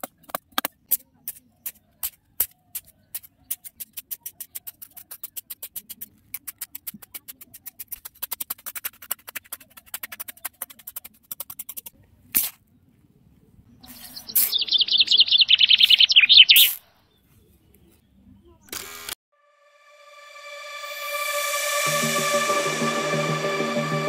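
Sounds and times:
hand tool digging in sandy soil: 0:00.0 - 0:12.6
bird trilling: 0:13.8 - 0:16.8.

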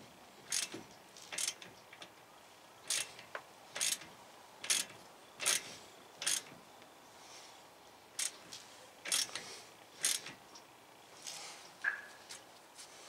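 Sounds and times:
ratchet wrench clicking: 0:00.5 - 0:02.1, 0:02.9 - 0:03.2, 0:03.8 - 0:06.5, 0:08.2 - 0:08.4, 0:09.1 - 0:09.4, 0:10.0 - 0:10.4.

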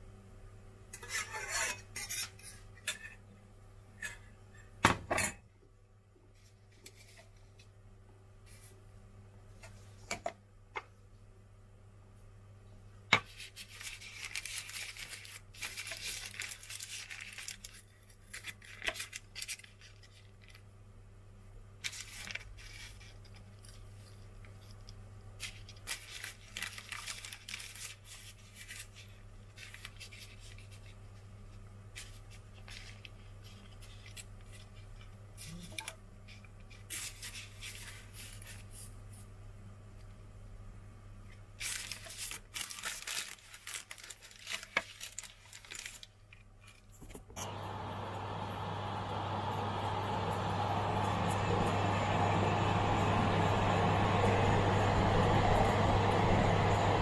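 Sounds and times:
baking paper rustling and crinkling: 0:06.3 - 0:07.8, 0:08.4 - 0:08.8, 0:13.2 - 0:20.7, 0:21.8 - 0:39.4, 0:41.5 - 0:47.6.

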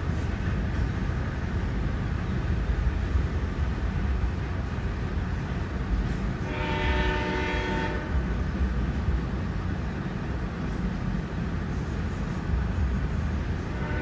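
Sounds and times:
freight train rumbling past: 0:00.0 - 0:14.0
train horn: 0:06.4 - 0:08.4, 0:13.7 - 0:14.0.

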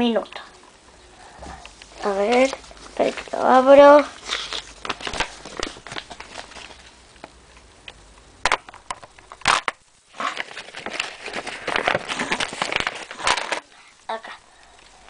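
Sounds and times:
paper crinkling and rustling: 0:01.7 - 0:07.0, 0:09.2 - 0:13.9.

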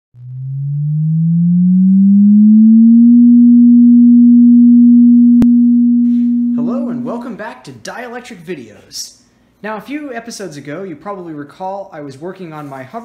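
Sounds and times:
rising electronic sine tone: 0:00.1 - 0:07.4.

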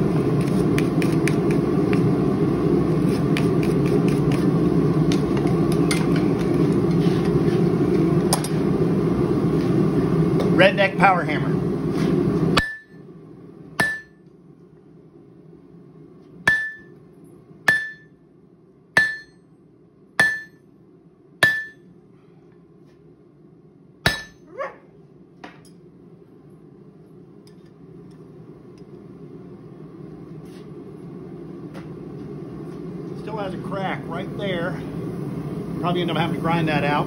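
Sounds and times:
hammer striking metal on anvil: 0:12.6 - 0:13.0, 0:13.8 - 0:14.2, 0:16.5 - 0:17.0, 0:17.7 - 0:18.2, 0:19.0 - 0:19.5, 0:20.2 - 0:20.6, 0:21.4 - 0:21.9, 0:24.0 - 0:24.4.

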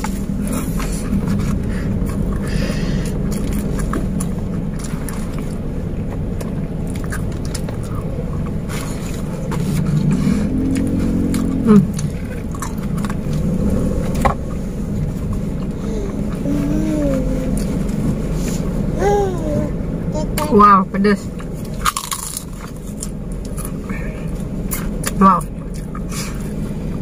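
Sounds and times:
chewing: 0:00.0 - 0:16.7, 0:21.3 - 0:27.0
car engine idling: 0:00.0 - 0:27.0
murmured vocal sound: 0:15.7 - 0:17.8.

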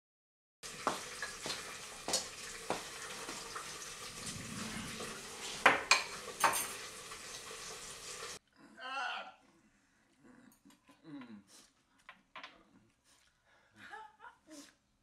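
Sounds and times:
kitchen background hiss: 0:00.6 - 0:08.4
dishes clinking on a table: 0:05.6 - 0:06.9.

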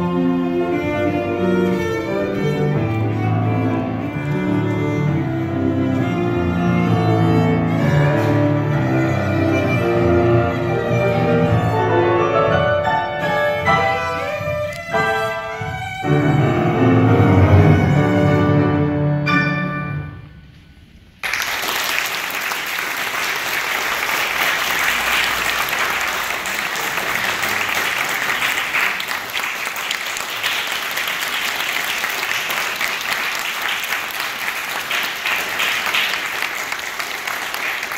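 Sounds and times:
cello and piano chord: 0:00.0 - 0:20.4
audience applauding: 0:21.2 - 0:37.9.

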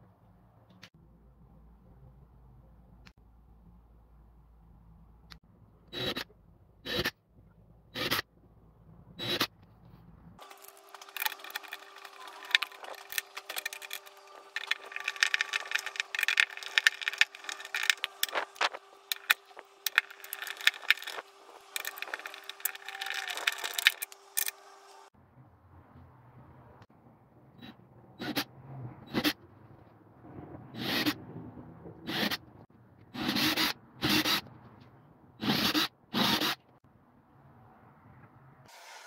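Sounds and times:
screwdriver clicking and scraping metal: 0:10.4 - 0:24.6
steady hum: 0:10.4 - 0:25.1.

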